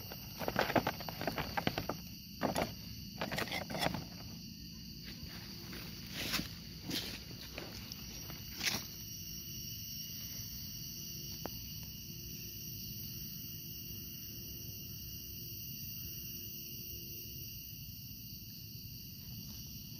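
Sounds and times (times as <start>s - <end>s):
insect chorus: 0.0s - 19.9s.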